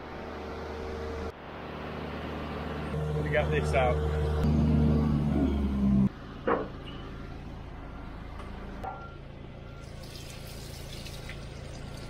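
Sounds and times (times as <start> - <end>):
water splashing onto gravel: 9.9 - 12.0.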